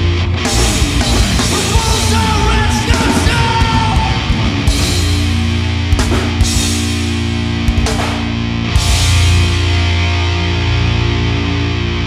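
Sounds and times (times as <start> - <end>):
heavy rock band playing: 0.0 - 12.0
yelled vocals: 0.5 - 6.8
sharp drum or cymbal hits: 4.7 - 9.4.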